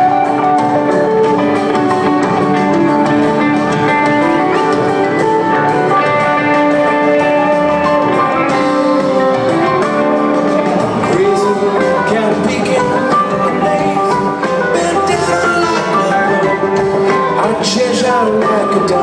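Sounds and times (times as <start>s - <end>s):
acoustic guitar: 0.0s - 19.0s
bass guitar: 0.0s - 19.0s
drums: 0.0s - 19.0s
electric guitars: 0.0s - 19.0s.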